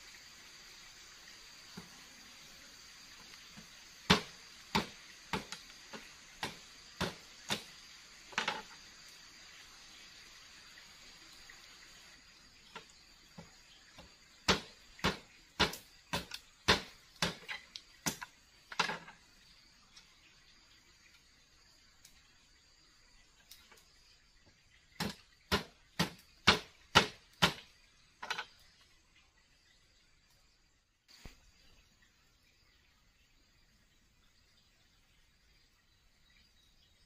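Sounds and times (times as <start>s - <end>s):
forest insects droning: 0.0s - 37.0s
wooden knocks and cracks: 8.3s - 8.8s.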